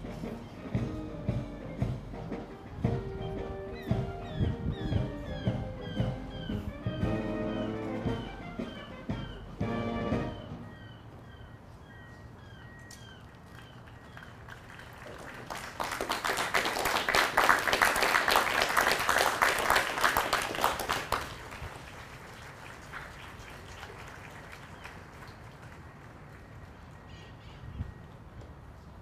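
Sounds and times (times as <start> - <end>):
crowd applauding: 13.6 - 26.9.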